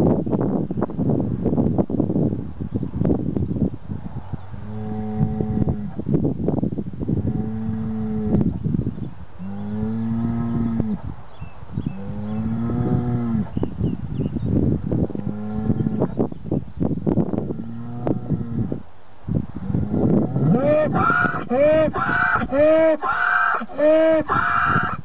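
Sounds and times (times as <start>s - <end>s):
bull bellowing: 19.9s - 25.0s.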